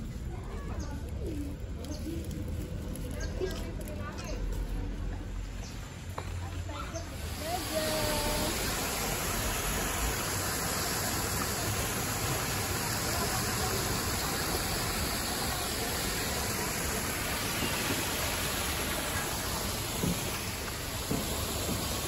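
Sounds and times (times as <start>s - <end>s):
fountain water splashing into pond: 7.1s - 22.0s.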